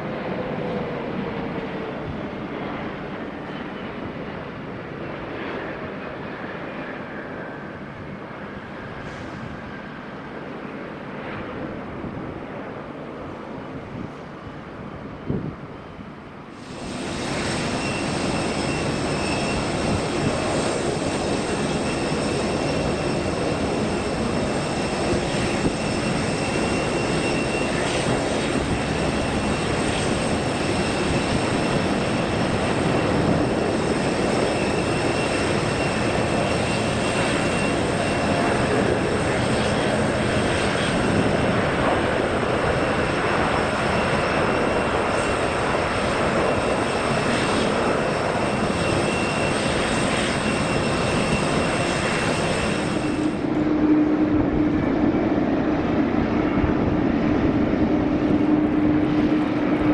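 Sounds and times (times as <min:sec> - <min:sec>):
jet engines roaring: 0:00.0 - 0:59.9
high whining engine tones: 0:16.6 - 0:59.9.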